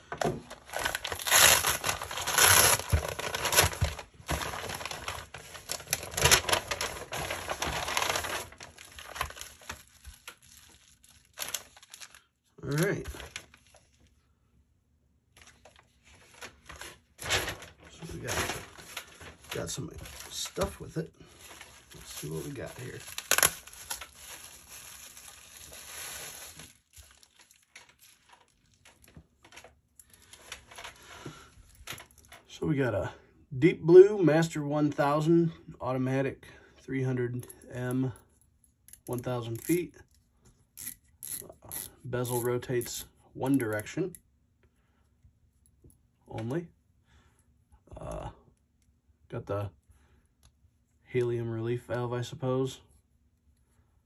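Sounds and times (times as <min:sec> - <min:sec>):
bubble wrap crinkling: 0:00.5 - 0:14.1, 0:15.4 - 0:32.4.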